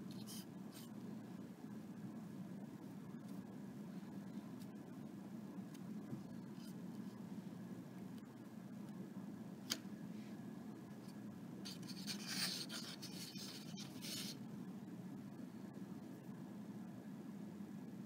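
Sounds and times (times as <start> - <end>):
steady low hum: 0.0 - 18.0
faint scraping and rubbing: 11.7 - 14.4.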